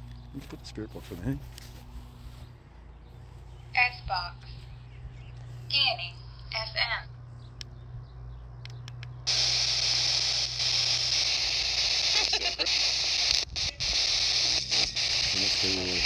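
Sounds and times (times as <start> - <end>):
radio static hiss: 9.3 - 16.0
snatch of radio station: 9.3 - 16.0.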